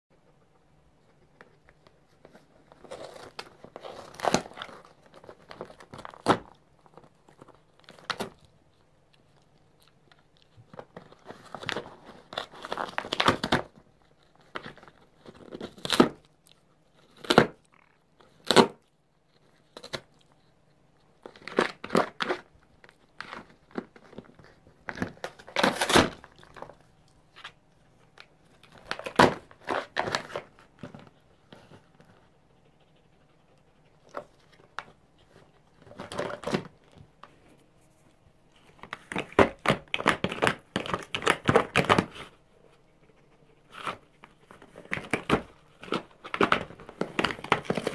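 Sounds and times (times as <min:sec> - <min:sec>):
fox tearing cardboard: 0:02.2 - 0:08.5, 0:10.7 - 0:16.3, 0:16.9 - 0:17.6, 0:18.2 - 0:18.8, 0:21.2 - 0:27.6, 0:28.6 - 0:32.2, 0:34.0 - 0:37.0, 0:38.8 - 0:42.4, 0:43.7 - 0:47.9.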